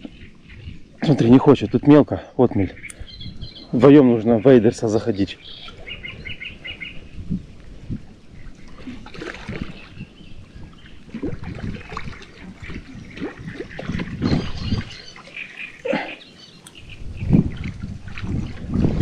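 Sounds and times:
water splashing and sloshing: 0:04.7 - 0:19.0.

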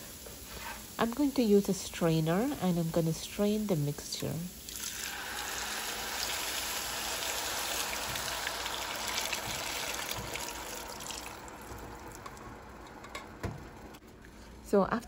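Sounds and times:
liquid pouring through strainer: 0:04.7 - 0:12.6.

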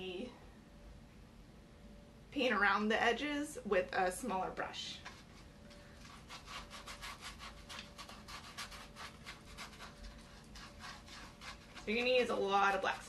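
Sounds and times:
paintbrush scrubbing on canvas: 0:05.0 - 0:13.0.

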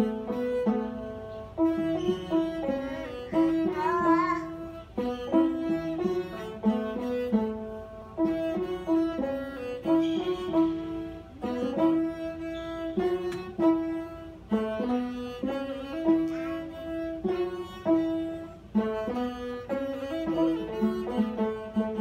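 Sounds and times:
bowed fiddle melody: 0:00.0 - 0:22.0
plucked lyre notes: 0:00.0 - 0:22.0.

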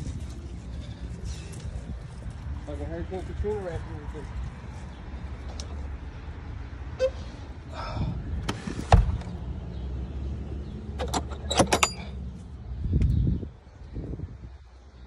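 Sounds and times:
steady low rumble: 0:00.0 - 0:10.8
metal gate latch clicking: 0:11.0 - 0:12.2.

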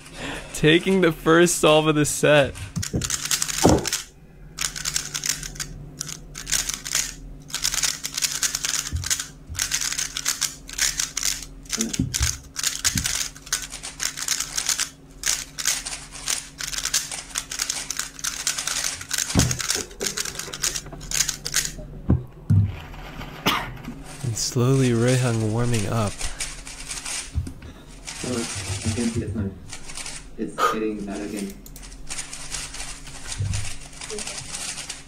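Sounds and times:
faint electrical hum: 0:00.0 - 0:35.0
plastic puzzle cube clattering: 0:02.5 - 0:21.8.

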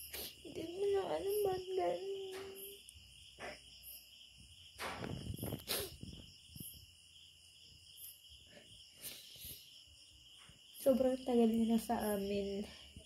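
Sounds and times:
woman sniffing and crying: 0:00.0 - 0:00.5, 0:05.4 - 0:06.1, 0:08.9 - 0:09.8
crickets chirping: 0:00.0 - 0:13.0.

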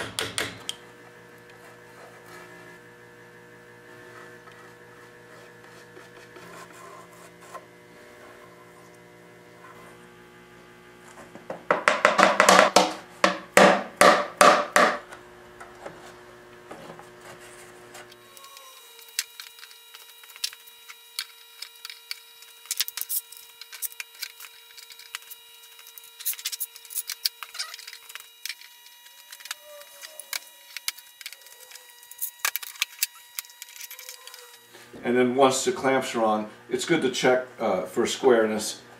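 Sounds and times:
electrical hum: 0:00.0 - 0:38.9
sharp wooden knocks: 0:11.7 - 0:15.0.

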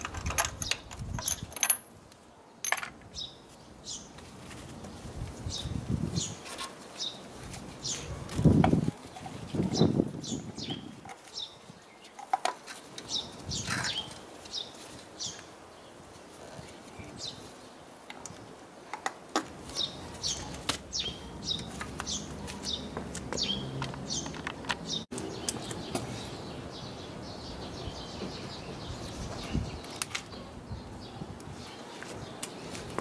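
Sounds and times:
clicks and knocks of engine parts: 0:00.0 - 0:01.8, 0:21.6 - 0:26.0
small birds chirping: 0:02.3 - 0:33.0.

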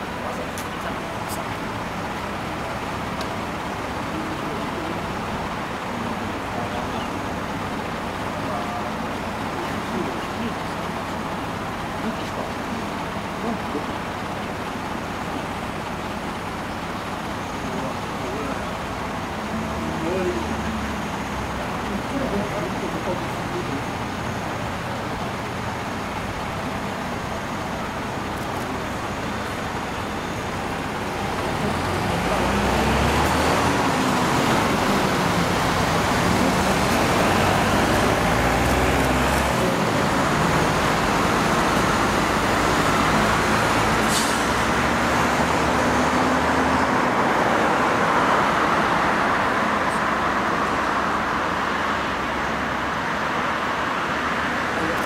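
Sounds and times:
road traffic noise: 0:00.0 - 0:55.0.

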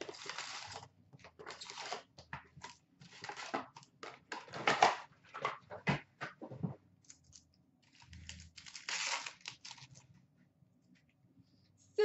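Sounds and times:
packaging crinkling and rustling: 0:00.0 - 0:05.9, 0:07.0 - 0:10.1.

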